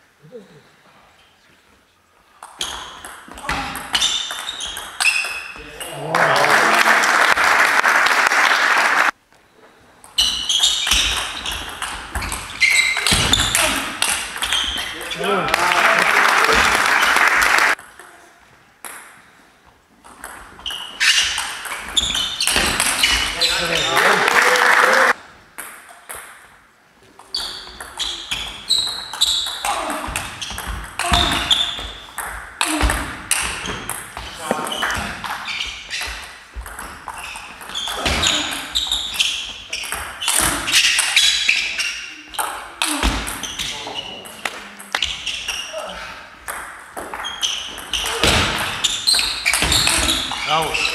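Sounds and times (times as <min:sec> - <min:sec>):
table tennis ball rally: 0:02.4 - 0:07.5, 0:10.1 - 0:18.1, 0:20.1 - 0:26.4, 0:27.2 - 0:50.9
short high squeaks: 0:03.9 - 0:05.6, 0:10.2 - 0:13.8, 0:27.2 - 0:29.7, 0:37.1 - 0:42.2, 0:48.8 - 0:50.9.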